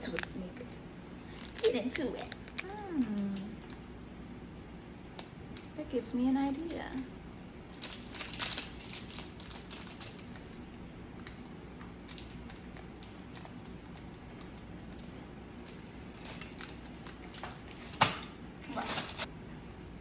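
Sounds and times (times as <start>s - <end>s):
plastic wrapper crinkling: 1.2s - 4.1s, 7.7s - 18.0s, 18.7s - 19.3s.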